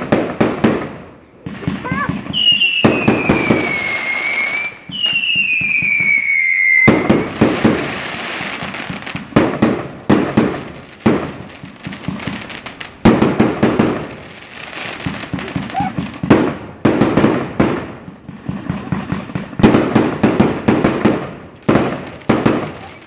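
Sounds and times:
firework bangs: 0.0s - 23.0s
firework crackling: 0.0s - 23.0s
firework whistles: 1.8s - 9.0s.

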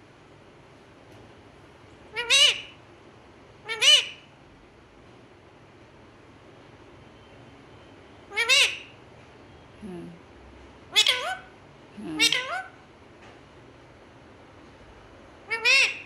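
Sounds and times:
parakeet calling: 2.1s - 2.8s, 3.6s - 4.3s, 8.3s - 9.0s, 10.9s - 12.8s, 15.4s - 16.0s.

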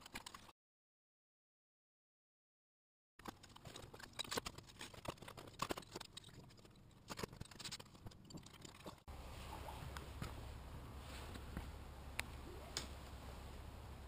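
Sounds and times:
tools and metal parts clicking: 3.2s - 9.1s.

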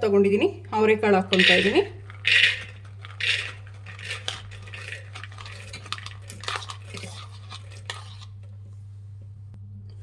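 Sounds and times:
low hum: 0.6s - 10.0s
beans clattering into metal pot: 1.3s - 8.3s
spoon scraping plastic bowl: 1.3s - 8.6s.

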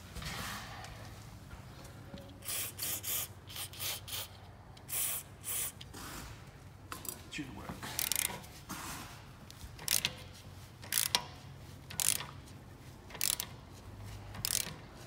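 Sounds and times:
aerosol spray hissing: 2.4s - 4.3s, 4.9s - 5.8s.

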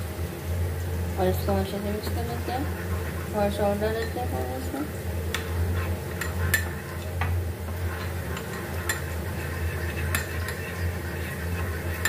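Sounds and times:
steady low hum: 0.0s - 12.0s
metal spoon stirring paste: 2.2s - 4.6s, 5.3s - 12.0s.

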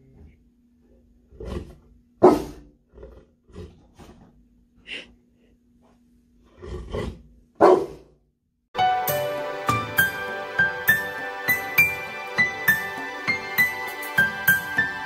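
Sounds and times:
dog barking deep woofs: 2.2s - 2.7s, 7.6s - 8.2s.

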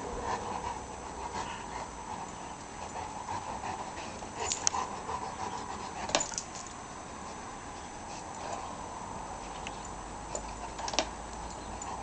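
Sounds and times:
puppy panting: 0.0s - 6.4s, 10.3s - 12.0s.

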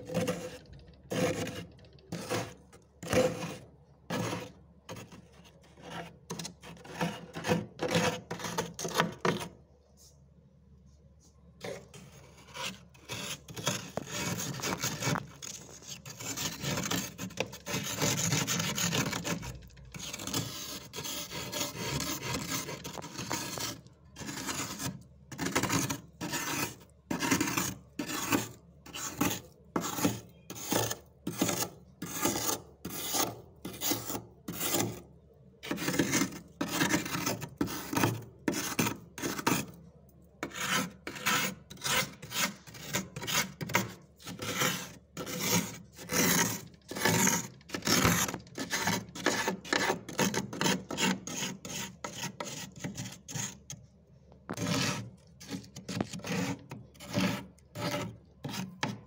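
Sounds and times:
fingers scraping frost: 11.6s - 39.8s, 40.4s - 53.6s, 54.5s - 59.0s.

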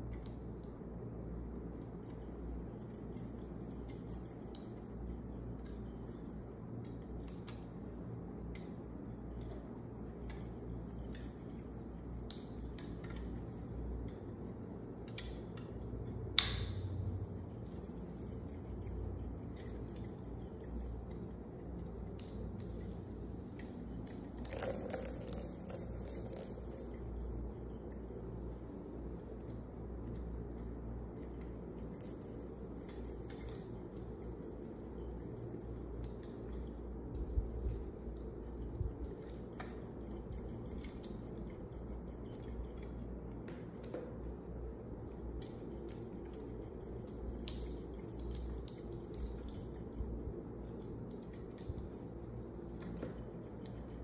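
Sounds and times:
bird-like chirping and warbling: 31.2s - 35.6s.

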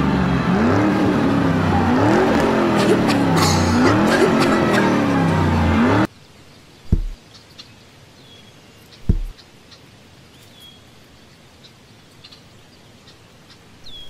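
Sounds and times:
small birds chirping: 6.2s - 14.0s
dull low thumps: 6.9s - 7.2s, 9.0s - 9.3s.

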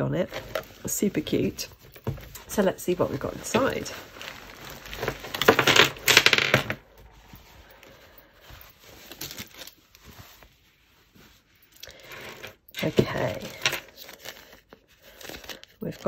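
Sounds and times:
beads clattering on table: 4.9s - 6.9s.

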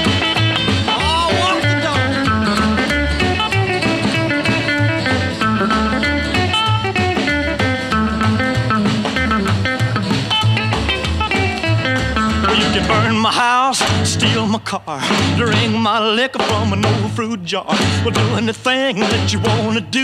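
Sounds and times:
lead guitar solo: 0.0s - 14.4s
drums: 0.0s - 20.0s
walking bass: 0.0s - 20.0s.

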